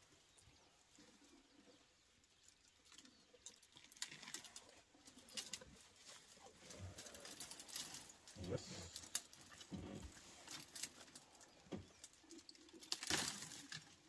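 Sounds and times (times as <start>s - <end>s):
twigs crackling and snapping: 2.3s - 14.0s
rustling: 3.0s - 14.0s.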